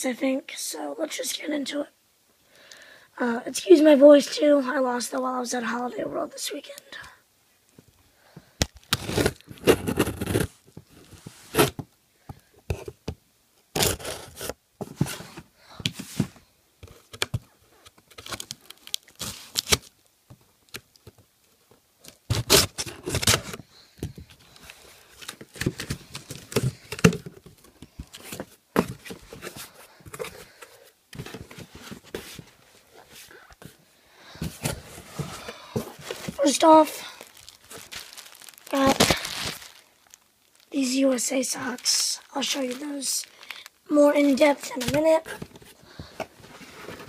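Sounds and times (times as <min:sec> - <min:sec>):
packing tape slit and torn: 0:18.2 - 0:19.9, 0:22.0 - 0:23.6
cardboard flaps scraping: 0:25.2 - 0:33.8, 0:34.4 - 0:39.8.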